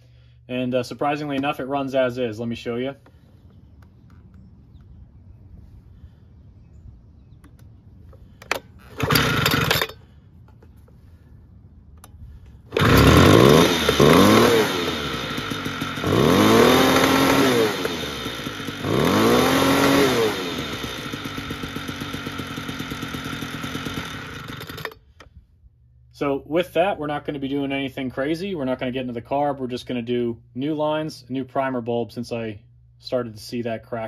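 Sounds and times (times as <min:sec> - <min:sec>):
leaf blower engine revving and idling: 0:08.1 - 0:10.2, 0:12.3 - 0:25.3.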